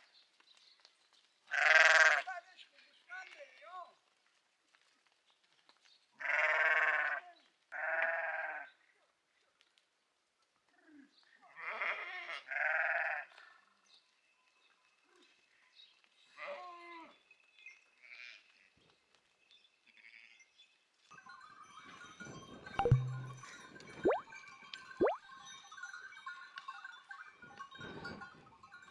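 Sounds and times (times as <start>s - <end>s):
sheep bleating: 1.5s - 2.2s, 7.8s - 8.6s, 11.6s - 13.2s.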